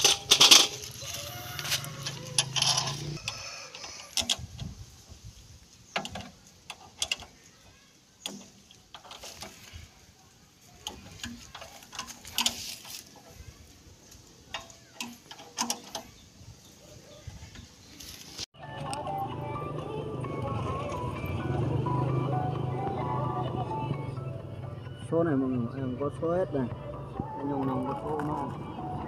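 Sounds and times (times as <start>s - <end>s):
wrench clicking on metal gears: 2.0s - 4.4s.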